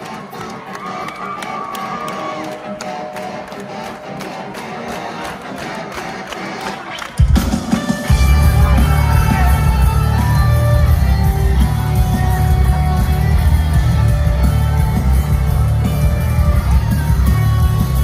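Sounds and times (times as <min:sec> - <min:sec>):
live rock band playing: 0:07.0 - 0:18.0
heavy drums: 0:07.1 - 0:18.0.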